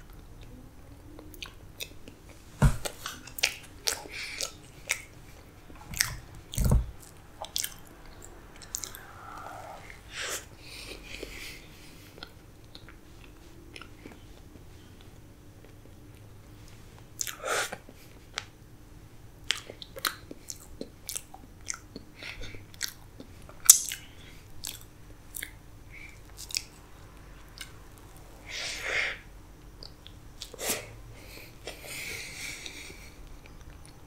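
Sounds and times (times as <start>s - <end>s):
wet chewing mouth sounds: 3.0s - 11.5s, 19.5s - 25.6s, 26.2s - 28.2s.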